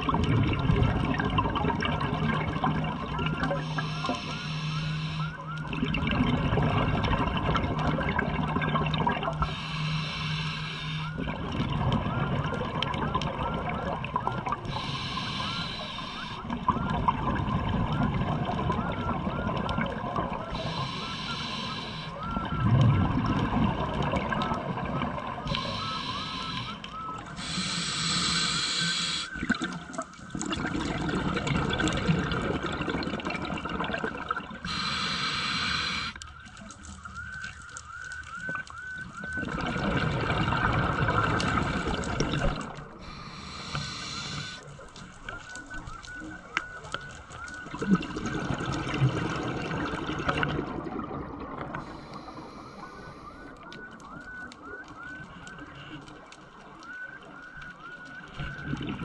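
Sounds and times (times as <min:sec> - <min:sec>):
gurgle of exhaled bubbles: 0:00.0 - 0:59.0
regulator inhale hiss: 0:03.6 - 0:05.3, 0:09.4 - 0:11.1, 0:14.7 - 0:16.4, 0:20.6 - 0:22.2, 0:25.5 - 0:29.4, 0:34.6 - 0:36.2, 0:43.0 - 0:44.7, 0:51.8 - 0:53.4.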